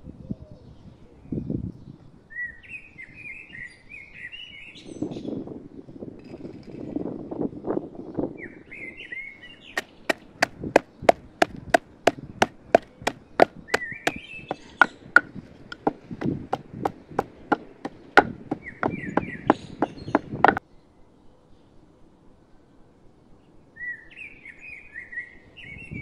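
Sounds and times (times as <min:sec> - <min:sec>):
bird chirping: 0:08.8 - 0:20.6
pestle pounding in wooden mortar: 0:09.8 - 0:20.6.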